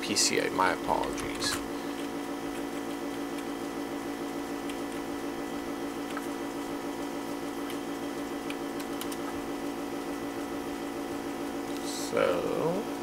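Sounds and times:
low background hum: 0.0 - 13.0
keyboard clicks: 8.4 - 9.3.

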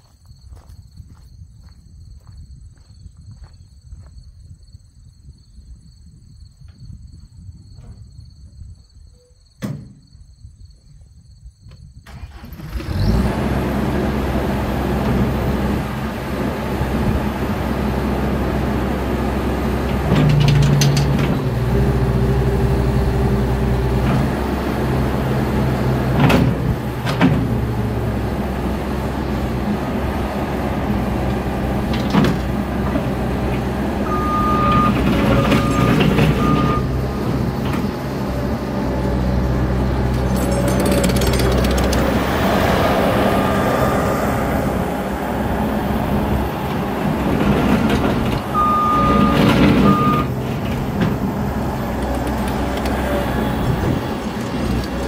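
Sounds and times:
diesel engine running: 12.1 - 55.0
short beeps: 34.1 - 37.0, 48.6 - 50.3.

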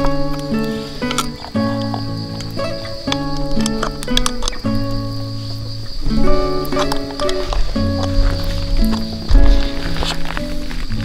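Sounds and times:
music with held chords: 0.0 - 11.0.

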